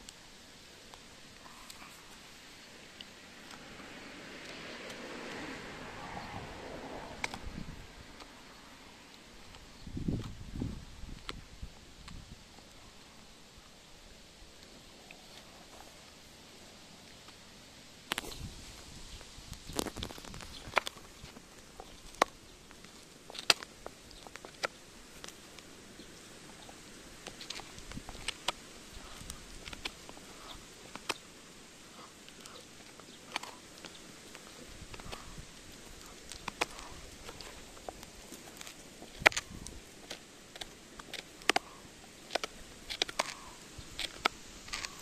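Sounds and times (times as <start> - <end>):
dog gnawing a bone: 31.9 - 45.0.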